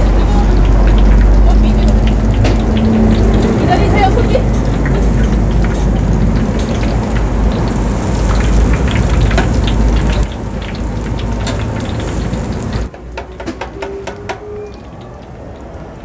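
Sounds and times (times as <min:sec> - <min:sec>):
low rumble: 0:00.0 - 0:12.9
fritters deep-frying in oil: 0:00.0 - 0:16.0.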